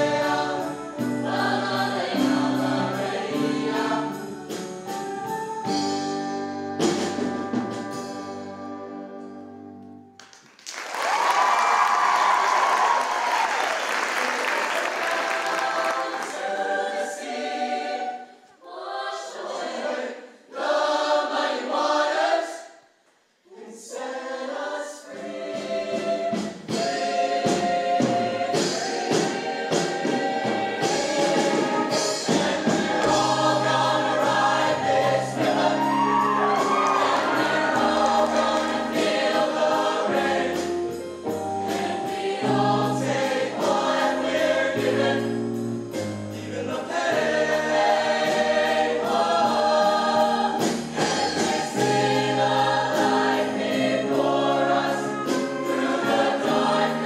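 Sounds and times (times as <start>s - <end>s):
band playing: 0.0s - 9.0s, 26.0s - 46.3s, 47.2s - 57.0s
choir singing in harmony: 0.0s - 9.6s, 12.7s - 22.8s, 23.4s - 57.0s.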